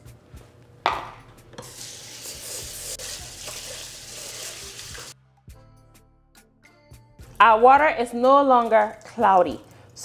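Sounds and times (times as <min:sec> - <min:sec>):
faucet water splashing into pot: 0:01.6 - 0:05.2.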